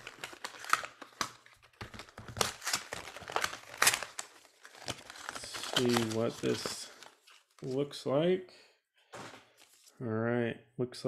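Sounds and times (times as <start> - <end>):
paperboard box crinkling: 0.0 - 7.7.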